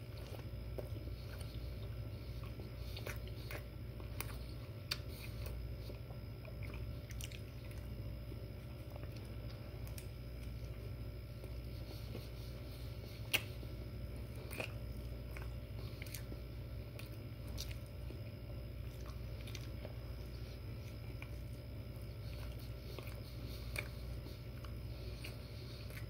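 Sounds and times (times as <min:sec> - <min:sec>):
man chewing with mouth open: 0:00.0 - 0:26.0
steady low hum: 0:00.0 - 0:26.0
wet mouth clicks: 0:13.2 - 0:13.6.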